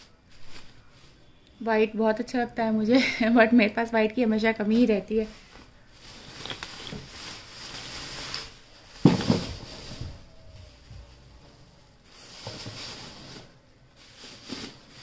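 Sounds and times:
plastic bags rustling: 0:00.0 - 0:02.2, 0:02.8 - 0:15.0
sudden thump: 0:09.0 - 0:09.7.

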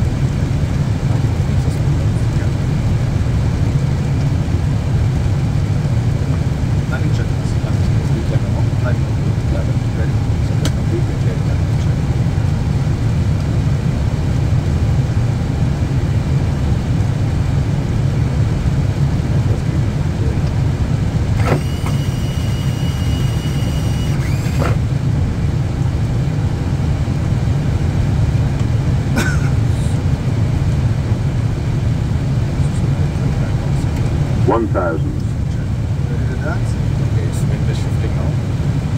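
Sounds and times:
cockpit airflow and engine rumble: 0:00.0 - 0:38.9
high electronic tone: 0:21.4 - 0:24.8.

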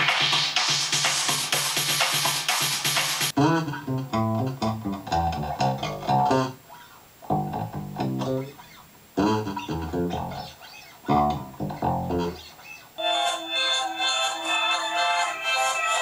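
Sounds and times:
funk guitar riff: 0:03.3 - 0:12.8
bass guitar riff: 0:03.4 - 0:12.5.

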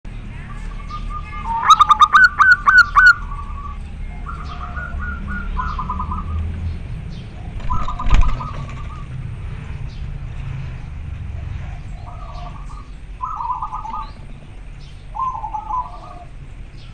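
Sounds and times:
dove cooing: 0:00.7 - 0:06.4, 0:07.2 - 0:09.3, 0:11.3 - 0:14.3, 0:15.1 - 0:16.4.

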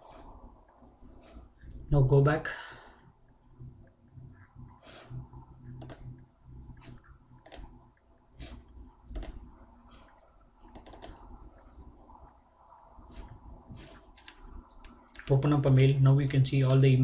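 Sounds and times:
faint low hum: 0:00.0 - 0:17.0
computer mouse clicking: 0:03.2 - 0:12.4, 0:13.1 - 0:16.0, 0:16.6 - 0:16.9.

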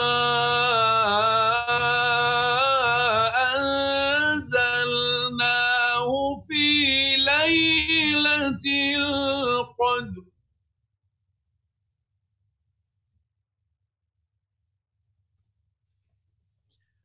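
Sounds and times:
man reciting melodically: 0:00.0 - 0:10.2.

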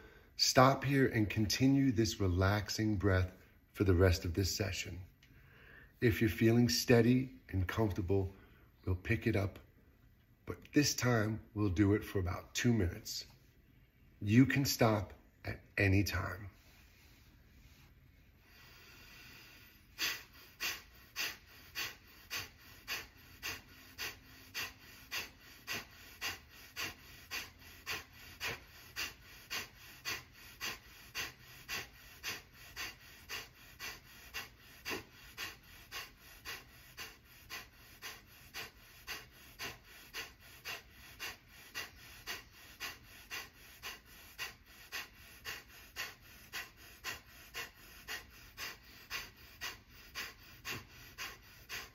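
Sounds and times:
forceful nasal exhalations: 0:16.6 - 0:51.9.

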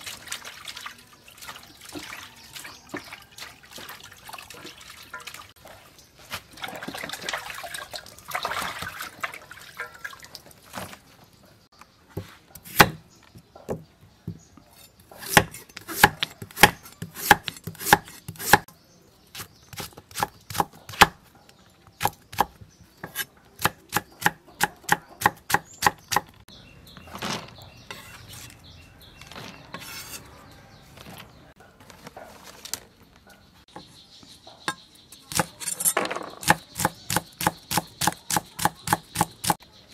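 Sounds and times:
knife chopping on wooden board: 0:12.2 - 0:13.0, 0:15.2 - 0:18.7, 0:19.4 - 0:21.2, 0:22.0 - 0:26.3, 0:36.4 - 0:39.6
lettuce rustling in plastic colander: 0:30.9 - 0:33.2.

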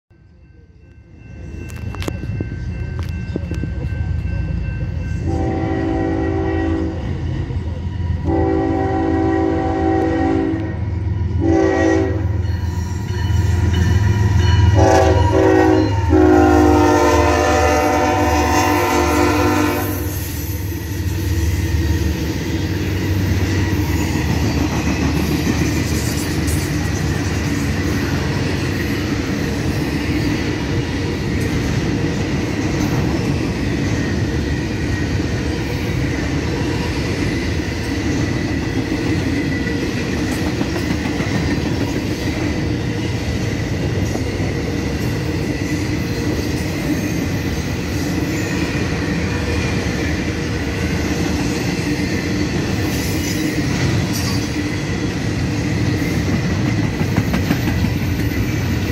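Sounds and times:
locomotive air horn blasts: 0:05.3 - 0:07.0, 0:08.2 - 0:10.8, 0:11.4 - 0:12.4, 0:14.7 - 0:20.2
train wheels clattering on rail: 0:19.6 - 0:58.9.

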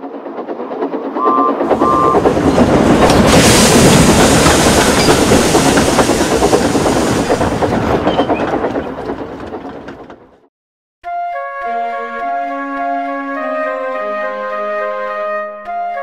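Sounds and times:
train rattling past: 0:00.0 - 0:10.5
train whistle toots: 0:01.2 - 0:02.3
hiss: 0:02.8 - 0:07.6.

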